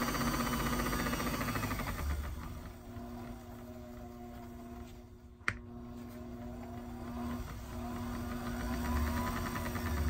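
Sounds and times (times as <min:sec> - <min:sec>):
small electric motor humming: 0:06.2 - 0:10.0.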